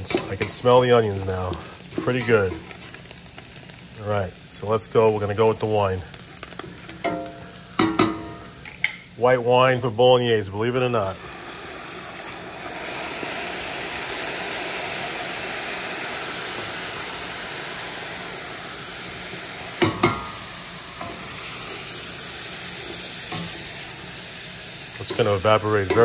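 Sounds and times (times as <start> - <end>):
sofrito sizzling in a pot: 0.0 - 26.0
wine boiling off: 0.0 - 26.0
utensil knocking on pot: 19.8 - 20.4.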